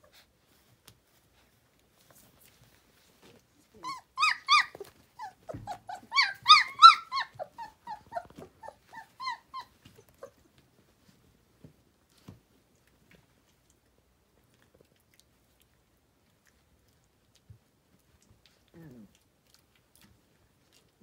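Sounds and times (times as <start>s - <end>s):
puppies squealing and whimpering: 3.8s - 10.4s.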